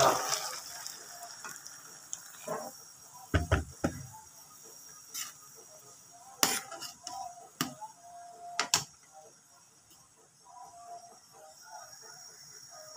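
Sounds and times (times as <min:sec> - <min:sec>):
metal spoon knocking on wok: 0:03.3 - 0:04.0.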